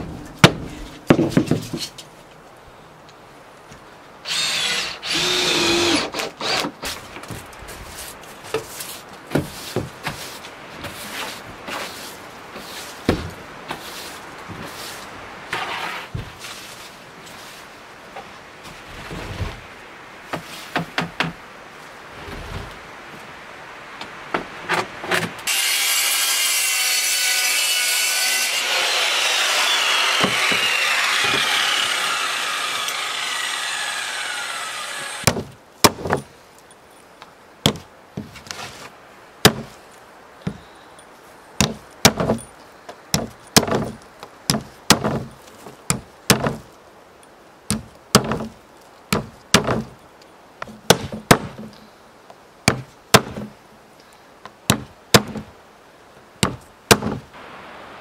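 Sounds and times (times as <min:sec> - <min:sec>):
power saw cutting wood: 0:04.2 - 0:06.8, 0:25.4 - 0:35.3.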